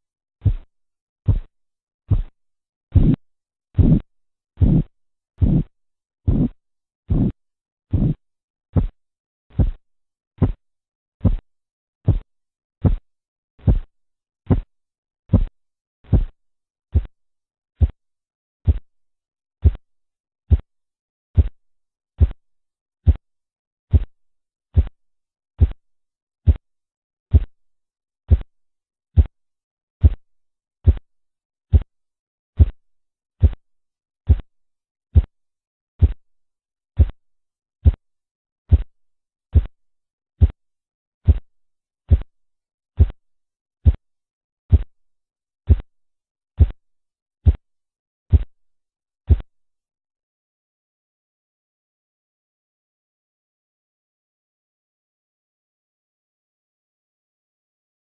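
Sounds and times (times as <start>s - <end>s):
low thudding pulse taps: 0.4s - 0.7s, 1.3s - 1.5s, 2.1s - 3.2s, 3.8s - 4.0s, 4.6s - 5.7s, 6.3s - 8.2s, 9.6s - 9.8s, 10.4s - 10.6s, 11.2s - 11.4s, 12.1s - 13.0s, 13.6s - 13.9s, 14.5s - 14.7s, 15.3s - 15.5s.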